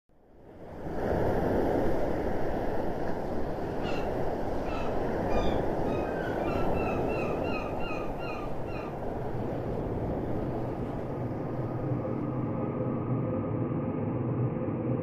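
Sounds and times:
surf washing: 0:00.4 - 0:13.1
gull calling: 0:03.6 - 0:09.3.

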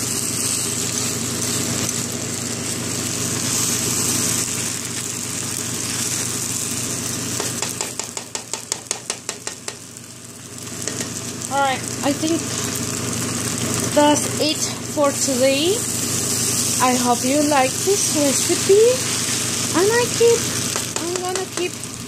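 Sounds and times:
rice sizzling in a wok: 0:00.0 - 0:22.0
spatula scraping a wok: 0:12.4 - 0:12.8, 0:15.9 - 0:19.7.

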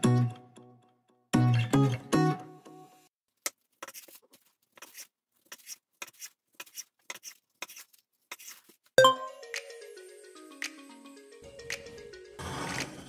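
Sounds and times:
knife cutting on wooden board: 0:04.8 - 0:08.8.

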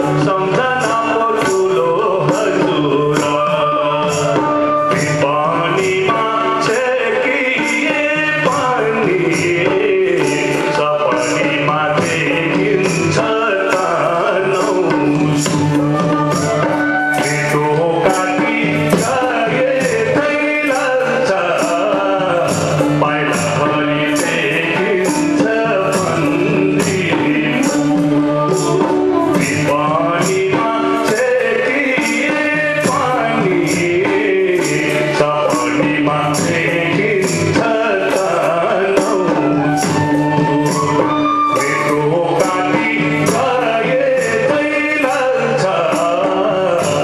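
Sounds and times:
bamboo flute: 0:00.0 - 0:08.0, 0:10.2 - 0:20.4, 0:21.8 - 0:31.1, 0:38.0 - 0:44.4
harmonium: 0:00.0 - 0:47.0
tabla drumming: 0:00.0 - 0:47.0.

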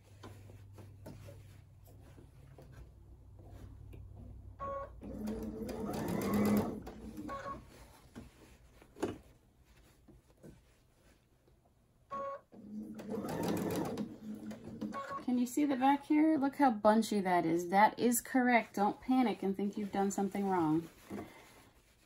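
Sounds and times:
sewing machine stitching: 0:04.7 - 0:07.6, 0:12.6 - 0:15.2.

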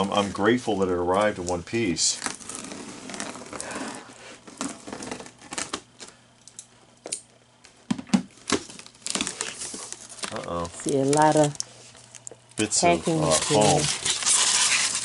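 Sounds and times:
packing tape peeling off cardboard: 0:02.2 - 0:05.8, 0:13.0 - 0:15.0.

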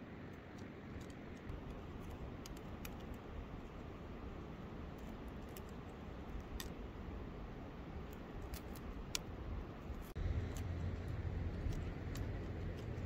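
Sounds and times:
rushing background noise: 0:00.0 - 0:13.0
low rumble: 0:09.9 - 0:13.0.

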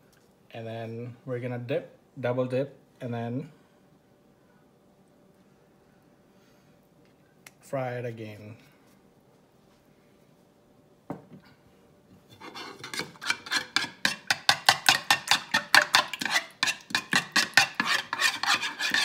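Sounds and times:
spoon scraping ceramic bowl: 0:12.3 - 0:19.0.

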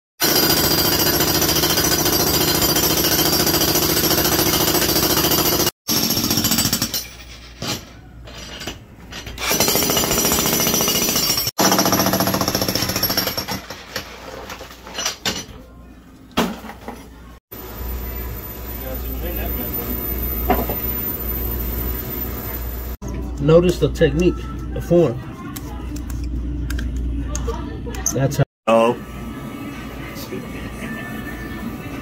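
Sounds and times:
jackhammer breaking concrete: 0:00.2 - 0:07.0, 0:09.4 - 0:14.0.

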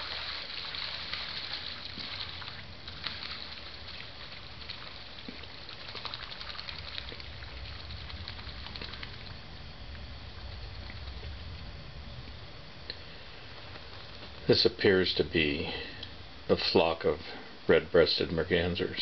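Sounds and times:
ducklings splashing across water: 0:00.0 - 0:09.4
low rumble: 0:01.7 - 0:14.4.

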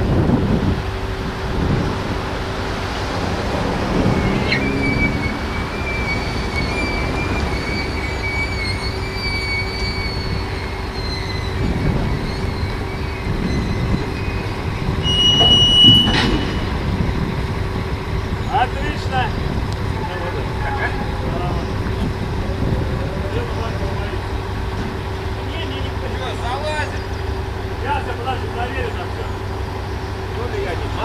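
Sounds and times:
low rumble: 0:00.0 - 0:08.6, 0:11.5 - 0:25.5
tram wheels squealing on rails: 0:02.4 - 0:31.0
metallic clank: 0:15.0 - 0:17.4.

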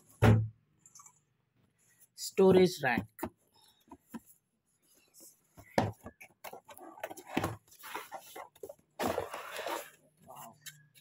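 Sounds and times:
cardboard rustling: 0:03.9 - 0:10.6.

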